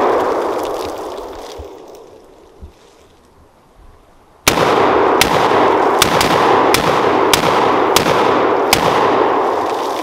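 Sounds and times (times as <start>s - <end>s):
gunshots: 4.5s - 9.7s.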